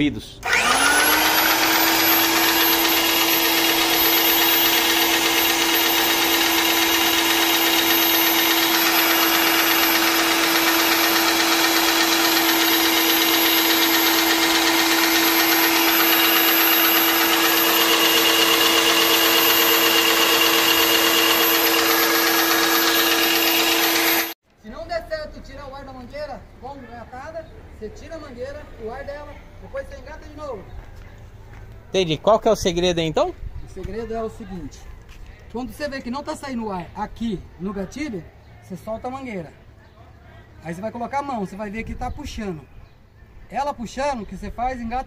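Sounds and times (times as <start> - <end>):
paint sprayer motor humming: 0.4 - 24.4.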